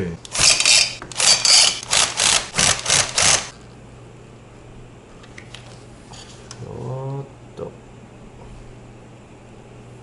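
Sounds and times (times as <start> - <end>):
screwdriver rasping scrapes: 0.4 - 3.4.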